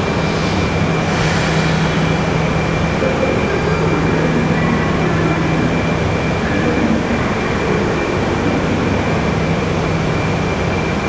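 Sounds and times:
constant low hum: 0.0s - 11.0s
train pulling away: 0.0s - 11.0s.

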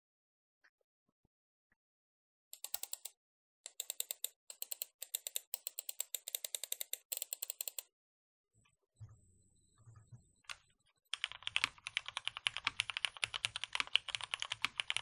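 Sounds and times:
computer mouse clicking: 2.6s - 7.9s, 11.2s - 15.0s.

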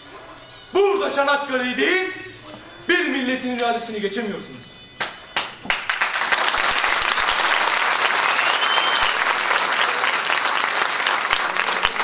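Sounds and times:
audience applauding: 5.0s - 12.0s
rising and falling whistle: 7.2s - 10.2s.

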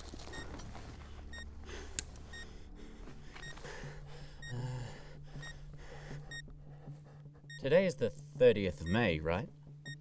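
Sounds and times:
low steady hum: 0.0s - 10.0s
countdown timer beeping: 3.4s - 6.5s, 7.4s - 10.0s.

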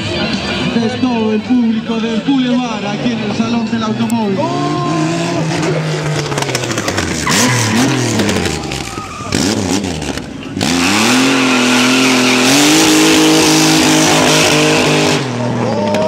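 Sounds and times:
motorcycle engine revving: 4.3s - 16.0s
tyre squealing in a burnout: 4.4s - 16.0s.

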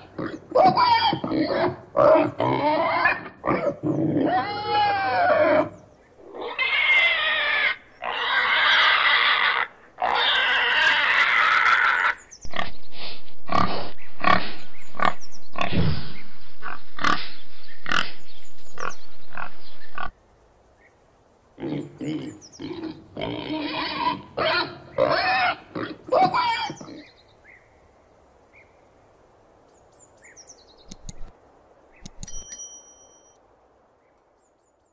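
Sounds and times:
pig grunting and squealing: 0.0s - 20.1s, 21.6s - 27.1s.

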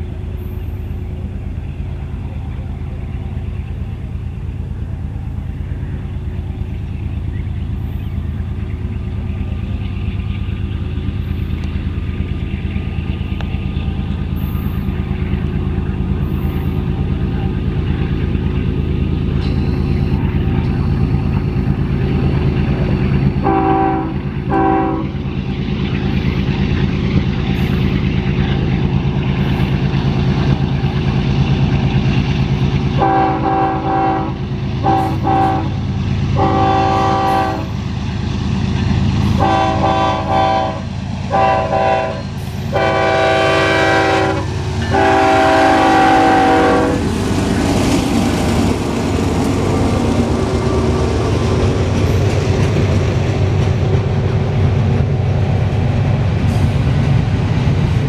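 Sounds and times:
diesel locomotive engines droning: 0.0s - 58.0s
train horn blasts: 23.4s - 25.2s, 33.0s - 37.8s, 39.2s - 47.1s.

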